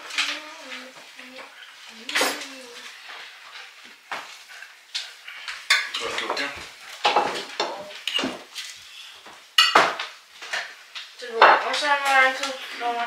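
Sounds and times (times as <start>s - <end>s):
cutlery clinking on plates: 5.0s - 8.4s, 9.6s - 10.7s.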